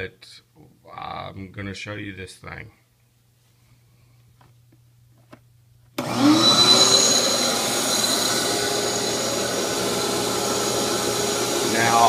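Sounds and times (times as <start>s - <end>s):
vacuum motor running: 6.0s - 12.0s.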